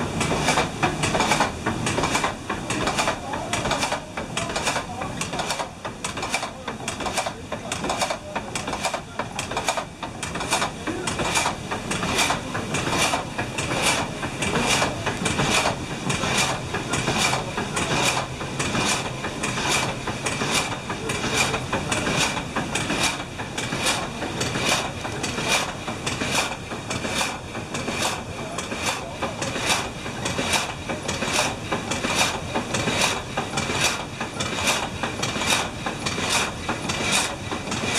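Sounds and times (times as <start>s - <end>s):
wooden machinery rumbling: 0.0s - 37.9s
frame saw blade strokes: 9.6s - 37.9s.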